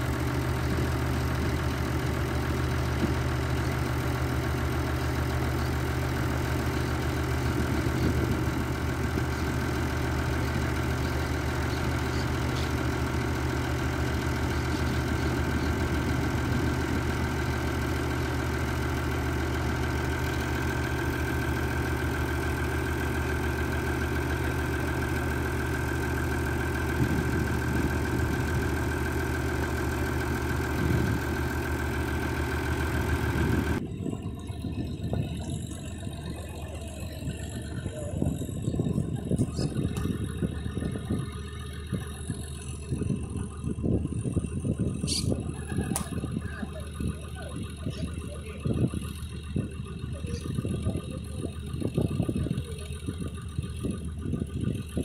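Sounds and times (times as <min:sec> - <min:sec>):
tractor engine idling: 0:00.0 - 0:55.0.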